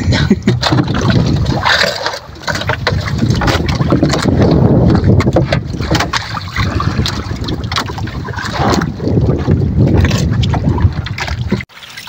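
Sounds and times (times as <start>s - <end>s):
wind buffeting microphone: 0.0s - 11.7s
knocks and clatter in wooden box: 0.4s - 8.1s.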